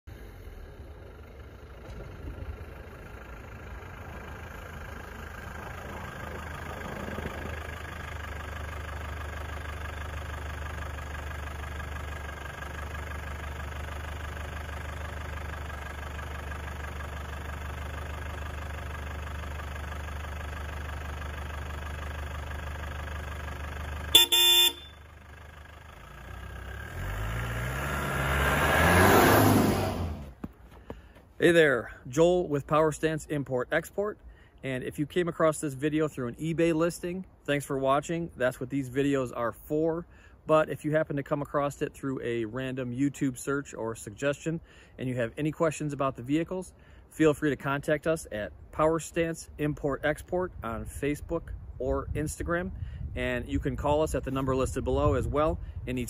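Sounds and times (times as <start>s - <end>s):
diesel engine running: 0.1s - 32.7s
horn toot: 24.1s - 25.0s.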